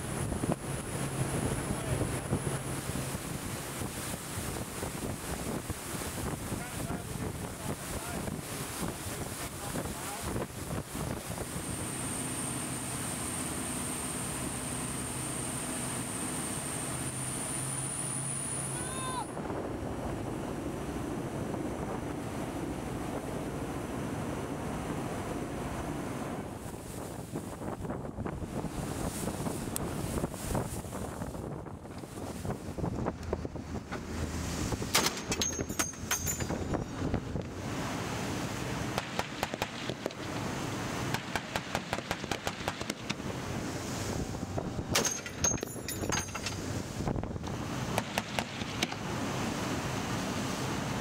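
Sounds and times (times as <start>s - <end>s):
wind buffeting microphone: 0.0s - 11.7s, 26.2s - 40.6s, 42.2s - 50.0s
sea noise: 0.0s - 51.0s
water rushing past boat: 0.0s - 51.0s.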